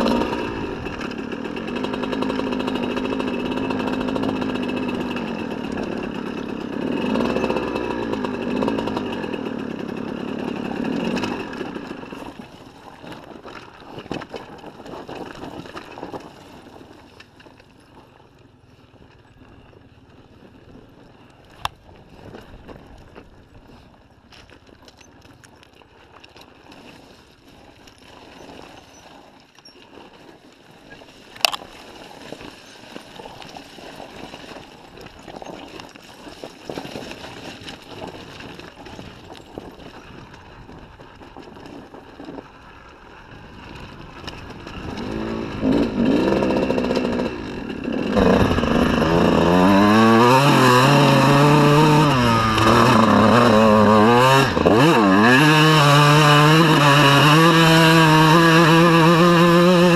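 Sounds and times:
two-stroke engine revving: 0:00.0 - 0:16.1, 0:44.0 - 0:59.9.

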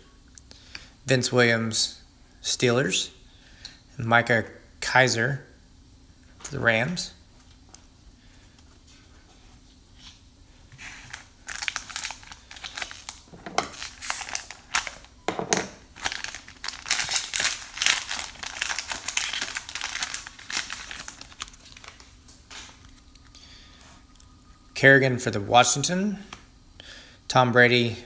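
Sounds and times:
plastic wrapper crinkling and tearing: 0:10.8 - 0:15.2, 0:15.9 - 0:23.2.

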